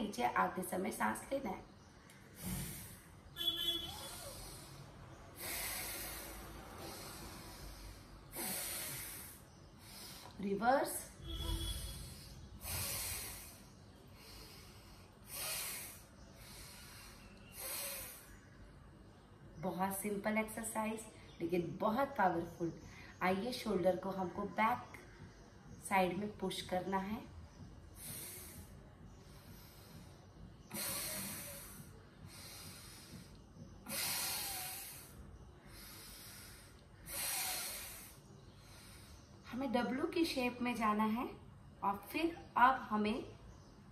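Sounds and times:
woman breathing hard through nose: 2.1s - 3.3s, 3.9s - 10.4s, 11.4s - 18.6s, 27.8s - 39.4s
woman forceful exhales: 3.8s - 4.8s, 30.7s - 32.8s, 33.8s - 35.1s, 37.1s - 38.2s.

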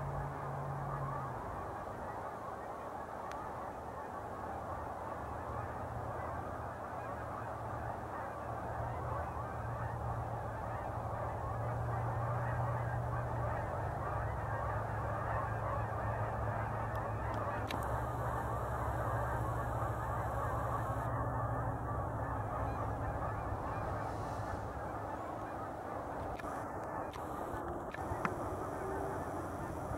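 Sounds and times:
geese honking in flight: 0.0s - 29.9s.

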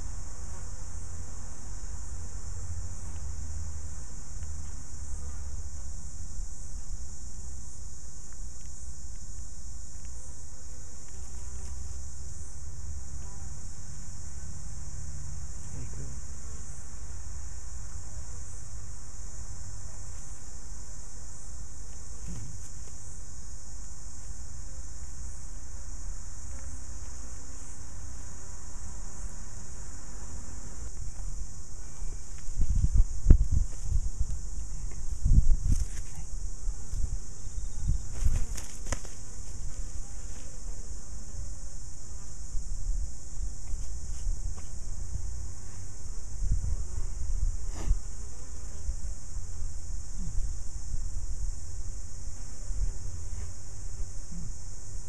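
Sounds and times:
high-pitched insect chorus: 0.0s - 55.0s
wind rumble on microphone: 30.8s - 39.9s, 42.2s - 54.7s.

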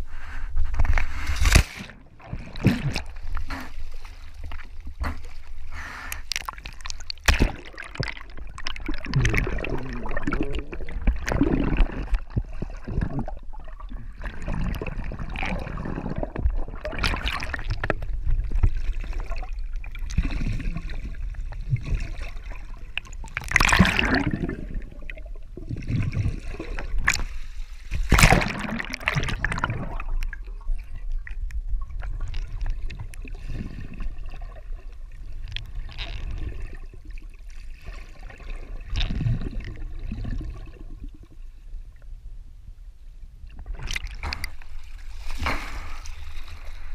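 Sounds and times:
low underwater rumble: 0.0s - 46.9s
seawater sloshing and splashing: 0.7s - 30.3s, 43.7s - 46.9s
rushes of splashing and bubbles: 0.7s - 41.4s, 43.6s - 46.9s.

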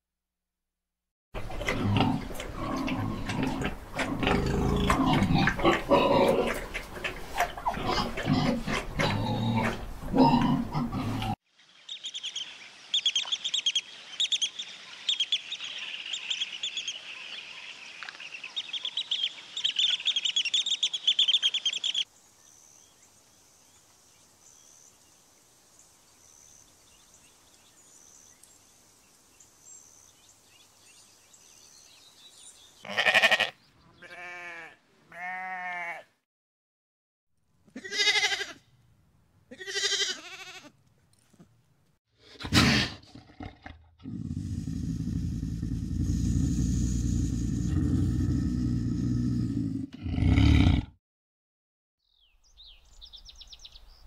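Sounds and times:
goats and sheep bleating: 32.8s - 36.2s, 37.7s - 38.6s, 39.5s - 40.8s.

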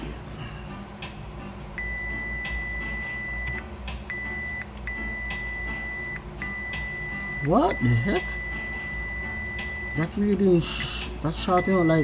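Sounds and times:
multimeter continuity beeps: 1.8s - 10.4s, 11.4s - 12.0s.

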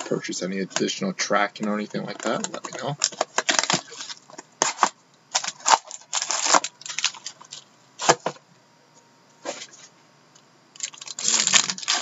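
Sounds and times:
plastic wrap crinkling: 1.8s - 8.2s, 10.8s - 12.0s.

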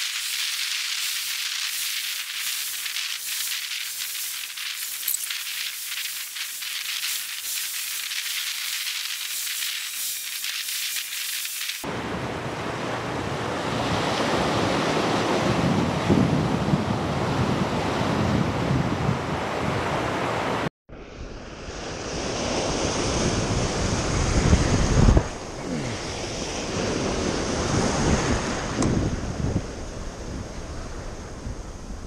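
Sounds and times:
wind buffeting microphone: 11.9s - 20.2s, 22.1s - 32.0s
ocean surf breaking: 21.7s - 31.3s.

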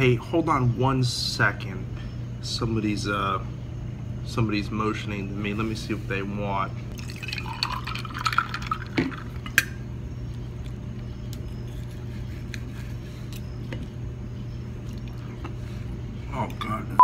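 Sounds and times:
steady low hum: 0.0s - 17.0s
drink poured into glass jar: 7.0s - 9.6s.

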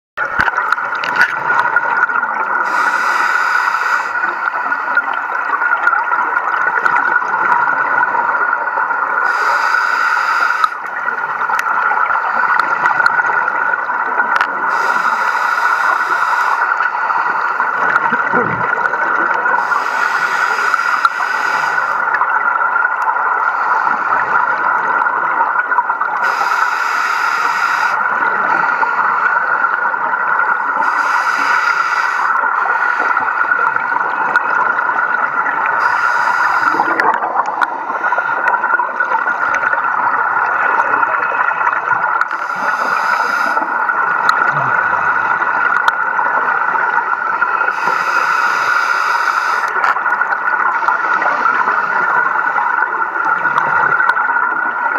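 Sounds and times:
underwater bubbles gurgling: 0.2s - 54.9s.

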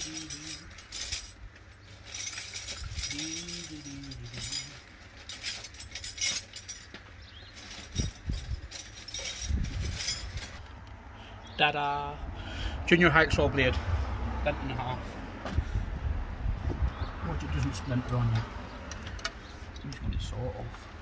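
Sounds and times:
metal tools clinking and scraping: 0.0s - 10.8s.

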